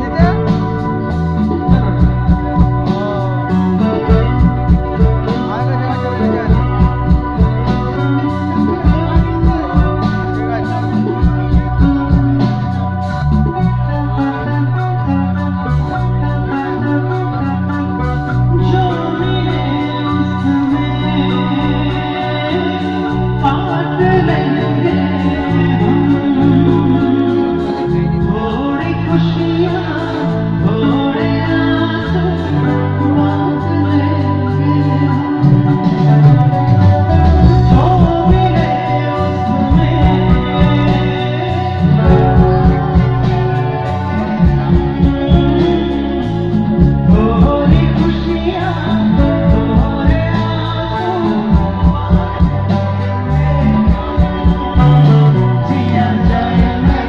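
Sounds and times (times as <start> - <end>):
bass line: 0.0 - 57.0
electric guitar: 0.0 - 57.0
live band playing: 0.0 - 57.0
man singing: 0.0 - 57.0.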